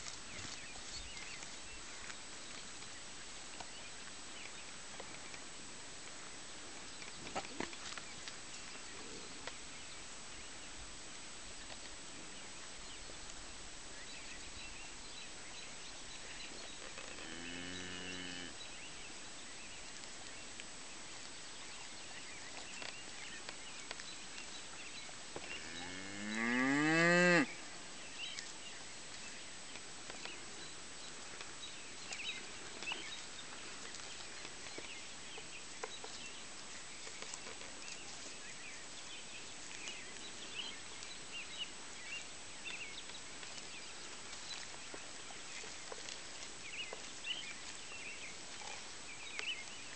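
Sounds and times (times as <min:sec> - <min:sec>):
cattle mooing: 0:17.2 - 0:18.5.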